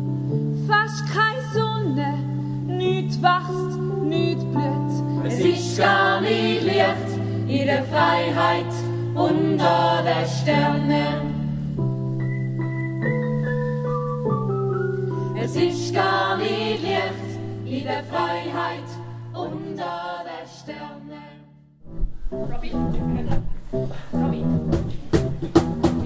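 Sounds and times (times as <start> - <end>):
several voices singing together: 5.2 - 11.5, 15.4 - 21.5.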